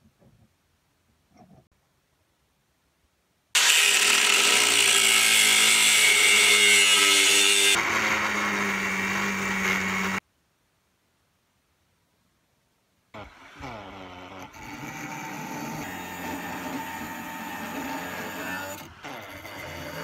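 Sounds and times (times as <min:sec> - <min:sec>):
angle grinder grinding steel: 0:03.6 - 0:10.2, 0:13.2 - 0:20.0.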